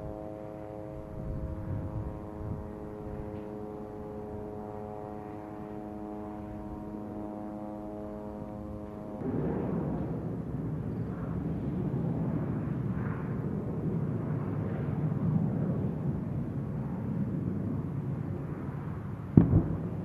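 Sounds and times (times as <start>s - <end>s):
aircraft droning overhead: 0.0s - 20.0s
distant explosion boom: 9.2s - 11.0s, 19.4s - 20.0s.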